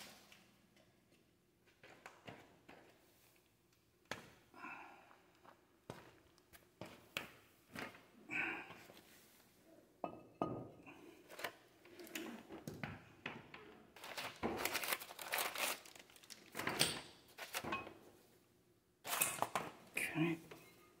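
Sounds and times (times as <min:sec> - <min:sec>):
packaging crinkling: 0:14.0 - 0:17.7.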